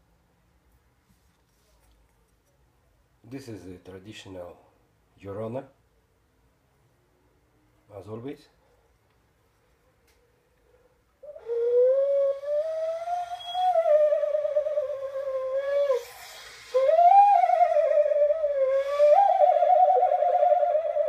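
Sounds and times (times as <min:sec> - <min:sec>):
clay whistle wailing: 0:11.2 - 0:21.0.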